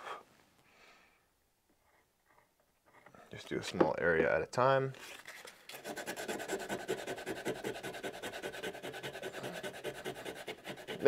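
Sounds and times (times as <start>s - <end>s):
sandpaper rubbing on wood: 5.8s - 11.0s.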